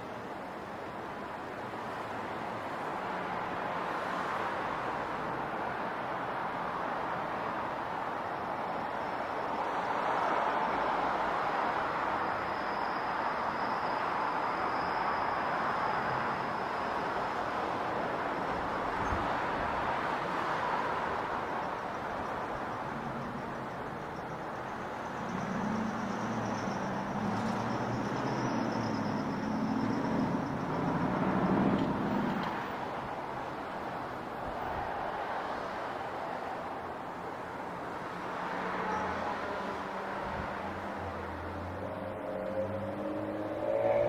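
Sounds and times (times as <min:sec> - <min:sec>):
road and vehicle noise: 0:00.0 - 0:44.0
faint high steady tone: 0:08.0 - 0:32.3.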